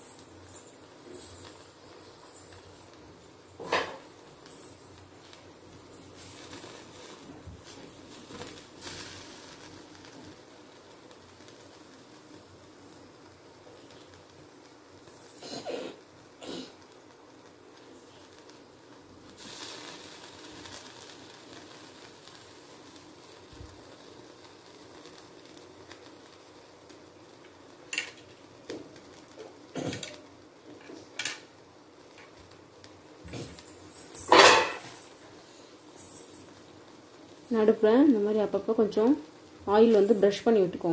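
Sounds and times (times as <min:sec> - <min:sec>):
gas burner hiss: 0:00.0 - 0:40.9
skewers knocking on wire grill: 0:34.2 - 0:35.0.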